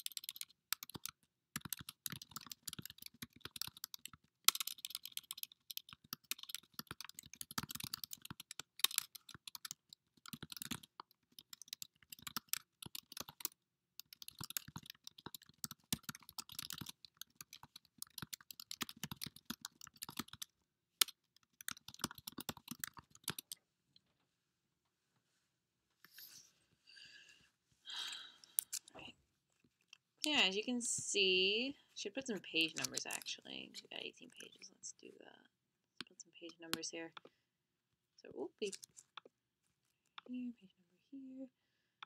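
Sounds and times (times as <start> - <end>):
typing on keyboard: 0.0 - 23.6, 32.1 - 34.6, 36.0 - 37.3.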